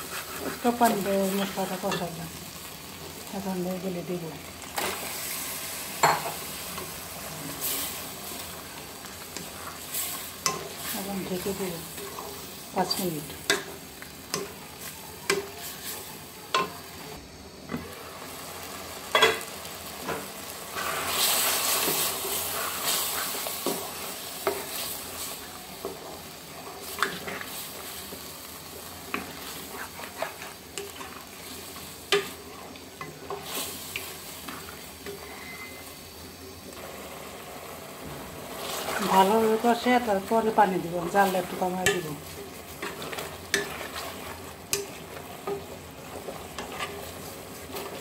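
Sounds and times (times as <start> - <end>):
wooden spatula scraping pot: 0.0 - 1.6, 29.1 - 31.5
meat sizzling in oil: 0.0 - 48.0.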